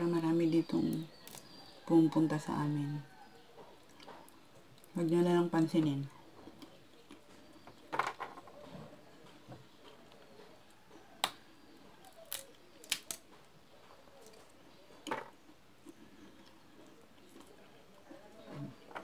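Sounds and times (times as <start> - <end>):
peanut shells snapping open: 1.2 - 1.6, 11.2 - 11.4, 12.1 - 13.3.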